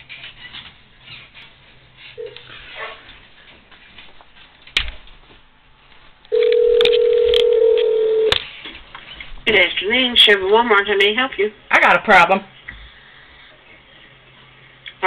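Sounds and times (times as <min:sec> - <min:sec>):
telephone ringback tone: 0:06.3 - 0:08.3.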